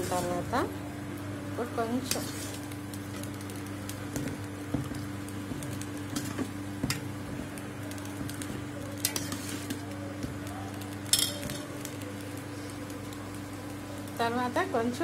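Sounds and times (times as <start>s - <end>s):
steady low hum: 0.0s - 15.0s
ladle stirring thick curry: 8.1s - 10.4s.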